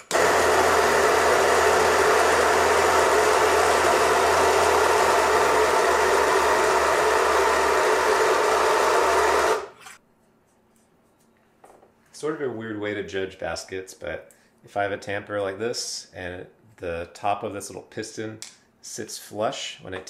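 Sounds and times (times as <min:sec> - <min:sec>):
coffee grinder grinding beans: 0:00.0 - 0:10.0.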